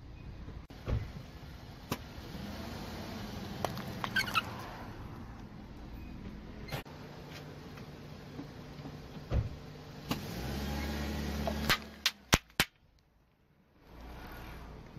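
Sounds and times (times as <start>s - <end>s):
sharp pops and cracks: 11.7s - 13.1s.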